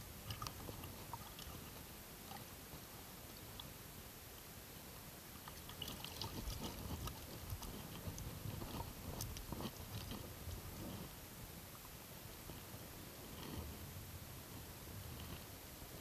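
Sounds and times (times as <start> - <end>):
faint irregular clicks: 0.2 - 2.4, 5.4 - 11.1.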